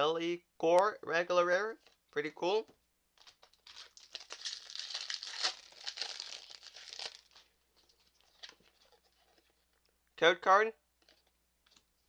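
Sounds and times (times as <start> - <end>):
foil wrapper crinkling and tearing: 3.2 - 9.0.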